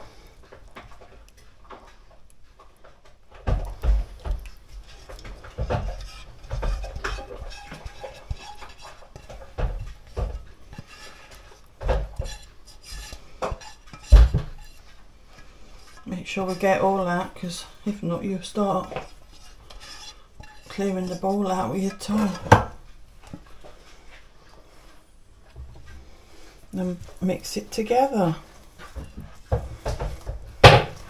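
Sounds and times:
utensil clinking on metal bowl: 3.6s - 23.4s
bowl scraped out: 4.7s - 17.8s, 18.4s - 22.5s.

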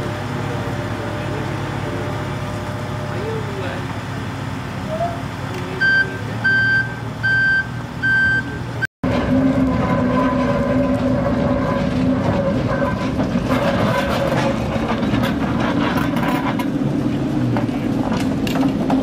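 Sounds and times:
diesel locomotive engine running: 0.0s - 19.0s
forklift reversing alarm beeps: 5.8s - 8.8s.

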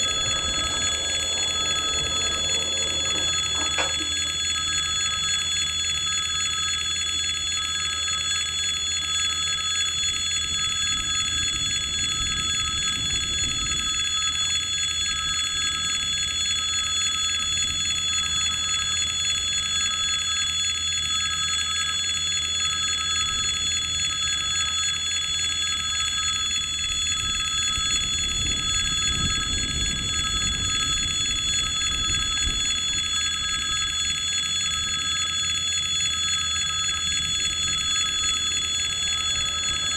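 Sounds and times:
level crossing warning bell ringing: 0.0s - 5.2s.

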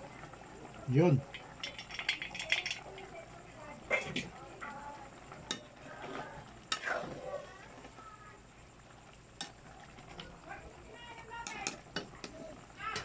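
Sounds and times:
stew sizzling: 0.0s - 13.0s
metal utensil clinking on pan: 1.3s - 3.0s.

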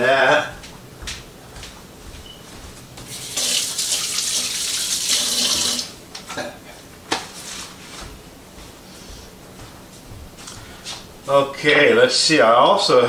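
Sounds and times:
faucet running: 3.1s - 6.0s.

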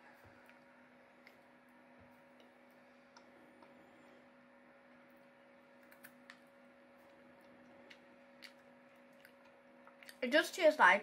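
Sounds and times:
faint steady hum: 0.0s - 11.0s
chocolate chewing clicks: 5.7s - 10.2s.

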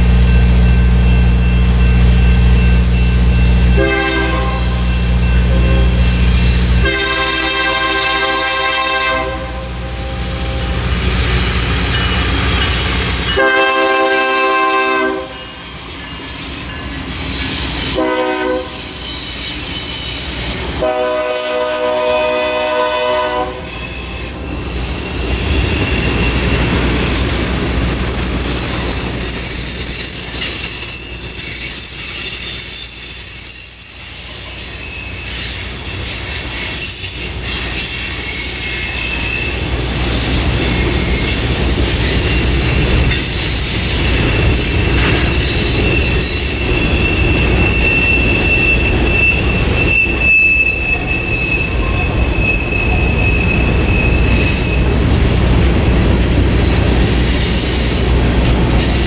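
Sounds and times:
train wheels rumbling on rail: 0.0s - 59.0s
high-pitched wheel squeals: 9.6s - 20.7s, 23.6s - 55.0s.

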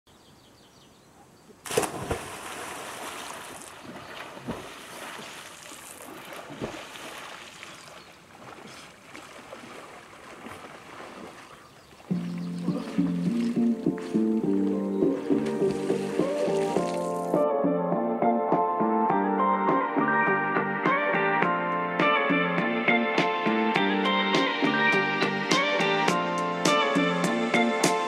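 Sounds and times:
lake water splashing and lapping: 1.6s - 17.4s
music: 12.1s - 28.0s.

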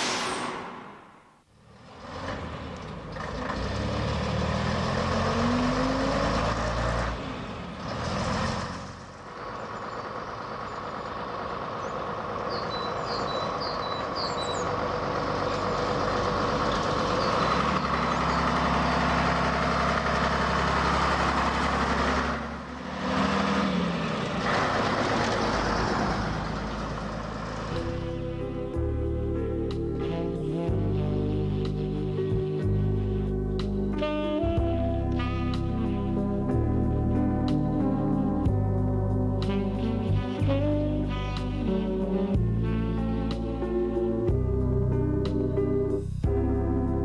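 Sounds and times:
bus engine running: 0.0s - 47.0s
bird chirps: 11.8s - 14.8s.

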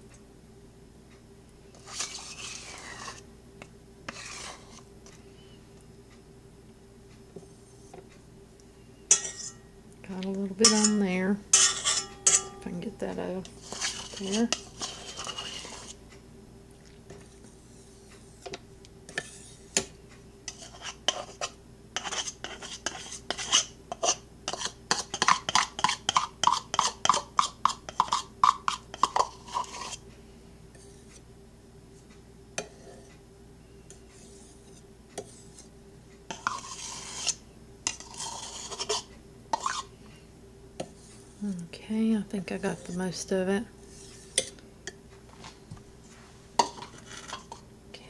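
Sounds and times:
utensil scraping metal bowl: 1.7s - 3.3s, 4.1s - 4.9s, 9.1s - 9.6s, 10.5s - 16.0s, 17.1s - 19.9s, 20.5s - 30.0s, 32.6s - 33.1s, 33.9s - 35.7s, 36.3s - 40.0s, 40.8s - 44.6s, 46.6s - 47.6s.

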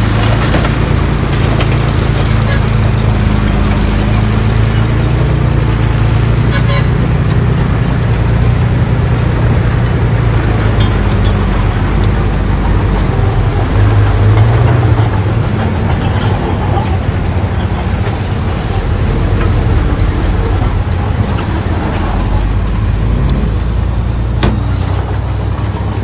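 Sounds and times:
bulldozer diesel engine running: 0.0s - 26.0s
metallic clanks: 10.5s - 26.0s.

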